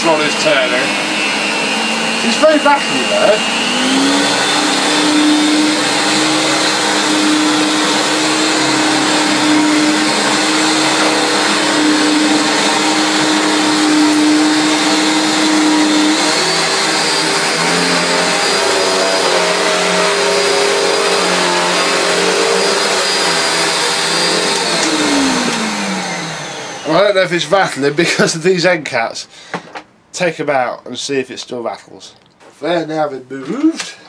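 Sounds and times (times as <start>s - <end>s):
vacuum cleaner motor running: 0.0s - 28.2s.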